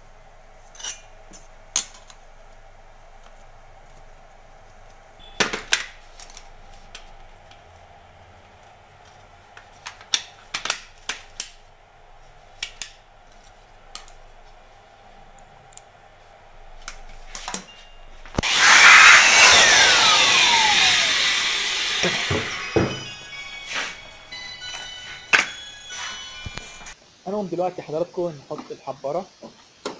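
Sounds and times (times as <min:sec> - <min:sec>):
falling whine: 0:18.1 - 0:27.0
loud rushing hiss: 0:18.4 - 0:26.9.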